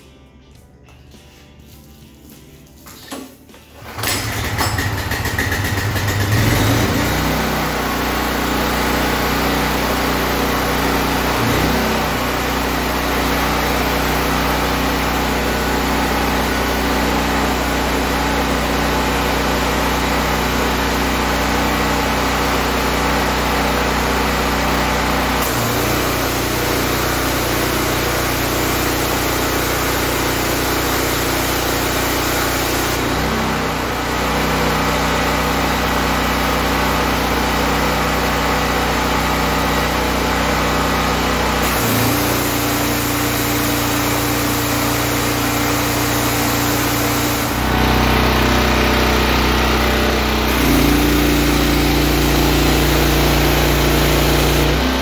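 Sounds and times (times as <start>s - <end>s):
pressure washer engine running: 1.6s - 55.0s
water jet hissing: 41.6s - 47.8s.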